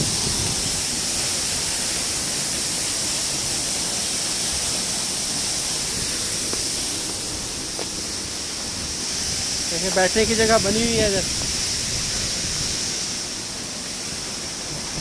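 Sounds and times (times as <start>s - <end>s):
waterfall splashing onto rocks: 0.0s - 15.0s.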